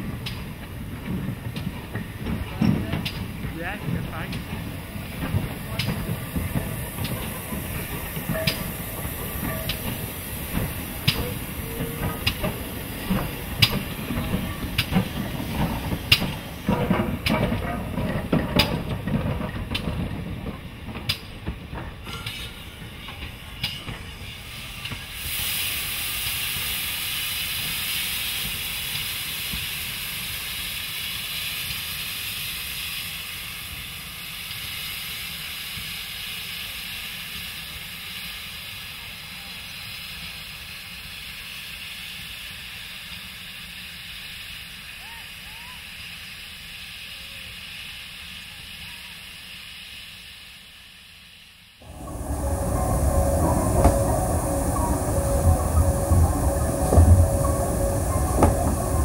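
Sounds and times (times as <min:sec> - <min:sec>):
train rumbling past: 0:00.0 - 0:39.4, 0:51.8 - 0:59.0
steam hissing: 0:00.0 - 0:59.0
wheels clicking over rail joints: 0:00.1 - 0:24.1.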